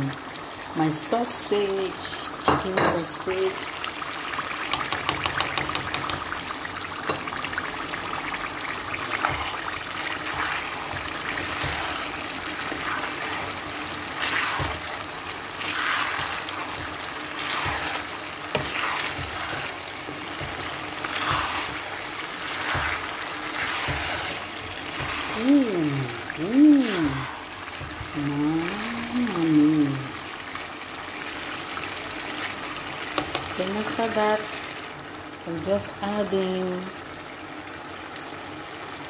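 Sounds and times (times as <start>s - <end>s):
sauce sizzling in a pot: 0.0s - 39.0s
spatula scraping pot: 9.1s - 25.5s.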